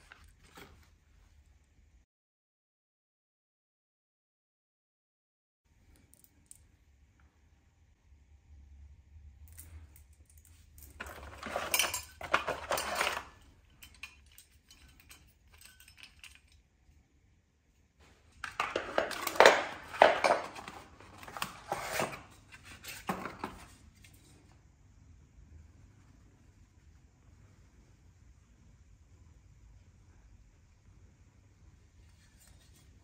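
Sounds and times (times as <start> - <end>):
light handling noises: 9.5 - 16.6
metal brackets clinking and rattling: 10.8 - 16.6.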